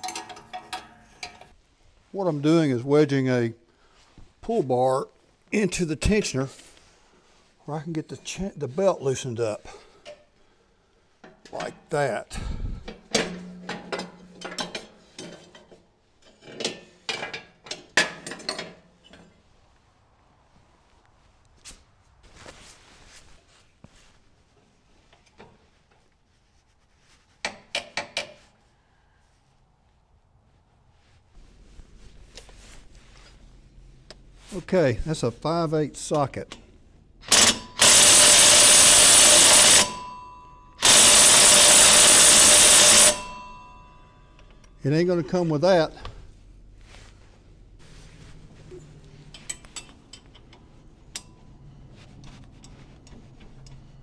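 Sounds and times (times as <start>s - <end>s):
metal bar clinking and scraping: 0.0s - 1.6s, 13.2s - 19.4s, 49.2s - 51.6s.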